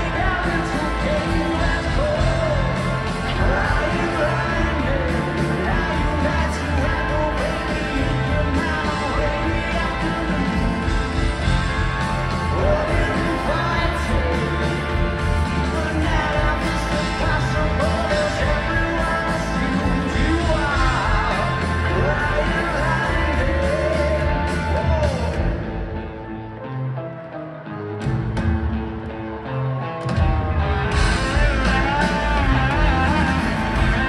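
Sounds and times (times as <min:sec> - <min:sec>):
person singing: 0:00.0 - 0:25.6, 0:31.0 - 0:34.0
live rock band playing: 0:00.0 - 0:34.0.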